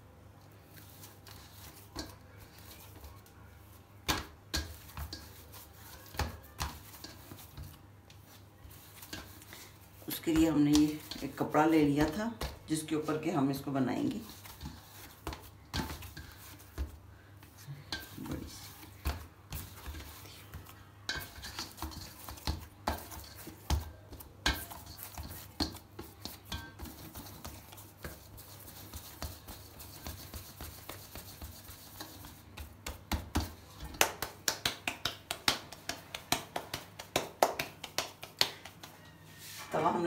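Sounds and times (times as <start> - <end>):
hands kneading dough in metal bowl: 0.0 - 40.0
hands slapping dough: 0.7 - 39.1.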